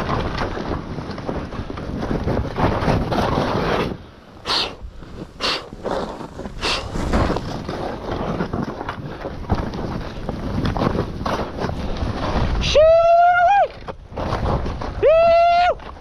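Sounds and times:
wind noise on microphone: 0.0s - 16.0s
skis hissing through snow: 3.2s - 8.4s.

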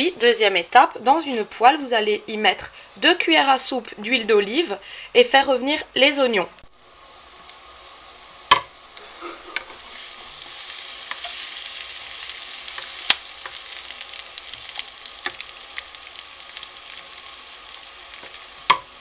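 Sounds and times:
onions sizzling in a frying pan: 0.0s - 19.0s
wooden spatula knocking on pan: 8.5s - 8.7s, 18.2s - 18.9s.

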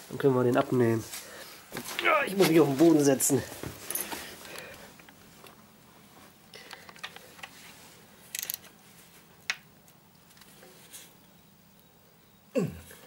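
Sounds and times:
spanner clicking on bolt: 8.3s - 8.6s.

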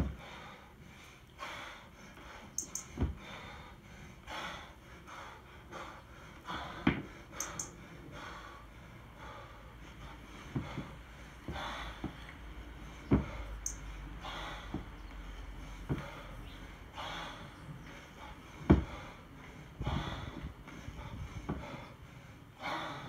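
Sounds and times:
hard rhythmic breathing: 0.0s - 23.0s
kettlebell thuds: 18.6s - 18.9s.

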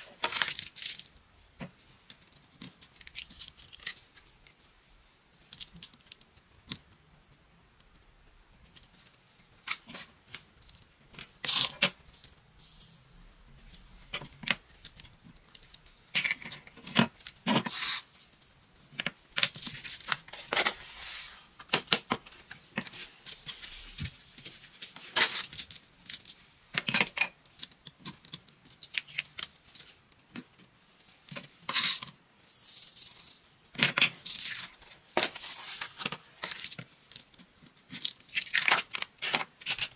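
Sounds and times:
craft sand rustling and hissing: 20.8s - 21.5s, 23.0s - 25.1s, 35.3s - 36.1s.

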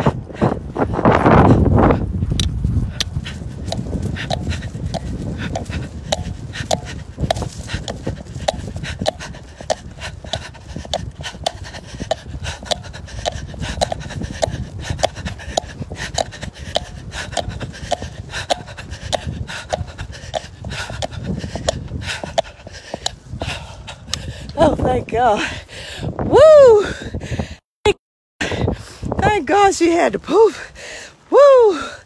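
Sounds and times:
wind and handling rumble: 0.0s - 27.6s, 28.4s - 32.0s
running footfalls: 2.2s - 24.5s
heavy panting: 2.8s - 24.7s.

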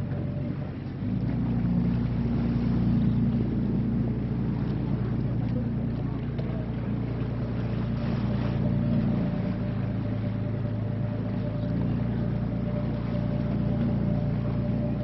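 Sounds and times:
boat engines humming: 0.0s - 15.0s
faint steady whine: 0.0s - 15.0s.

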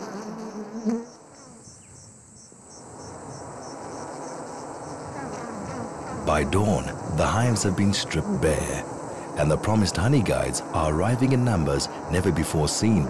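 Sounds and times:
bees buzzing: 0.0s - 13.0s
crickets chirping: 0.0s - 13.0s
thin high steady whine: 2.8s - 13.0s.

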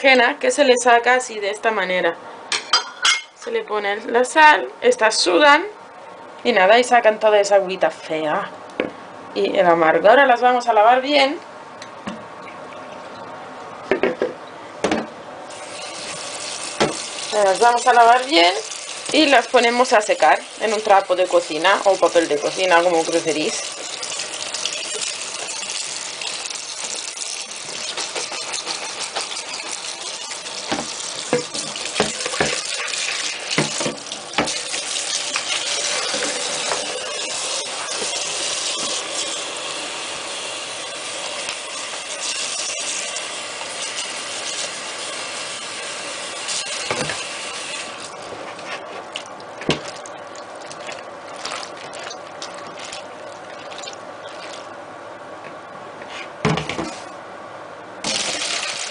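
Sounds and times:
hands stirring wet vegetables: 15.5s - 39.6s, 46.4s - 57.1s
tap water running into bowl: 15.5s - 48.3s, 58.0s - 58.9s.

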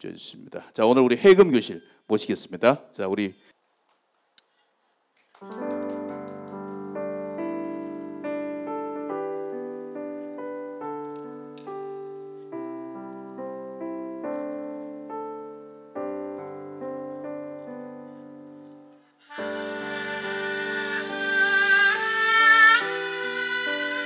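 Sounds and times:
piano chords and melody: 5.4s - 24.0s.

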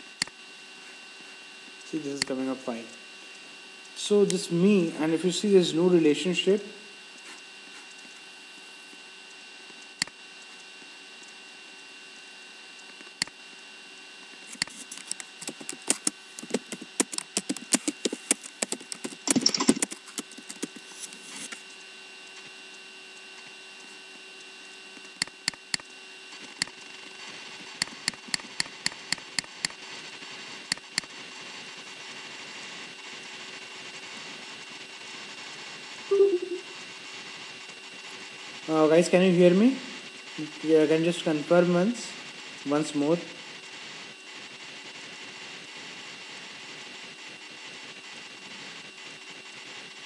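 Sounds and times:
faint electrical hum: 0.0s - 50.0s
computer keyboard clicks: 14.6s - 20.8s.

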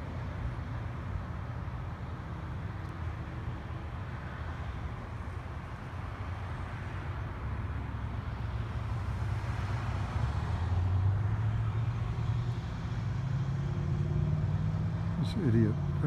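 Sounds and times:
vehicle engine running: 13.6s - 16.0s.

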